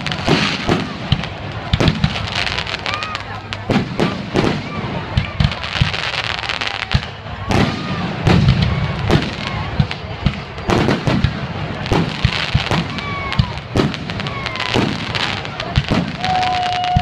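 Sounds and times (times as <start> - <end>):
fireworks launching and bursting: 0.0 - 17.0.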